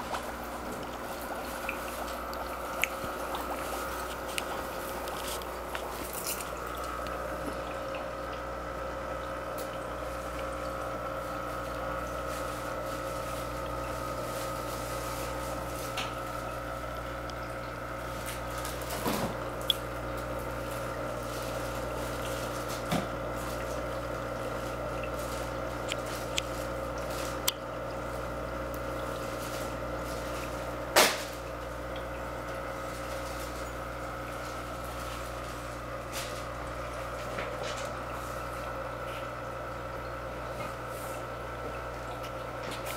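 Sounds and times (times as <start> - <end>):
water splashing: 0.0 - 28.0
aquarium pump motor hum: 0.0 - 42.9.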